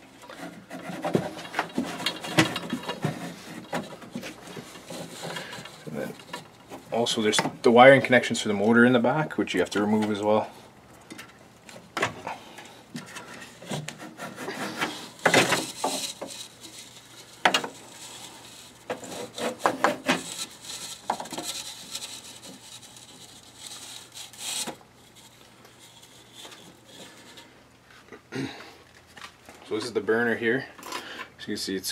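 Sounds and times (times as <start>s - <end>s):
metal parts scraping and rubbing: 0.2s - 7.3s, 13.0s - 27.6s.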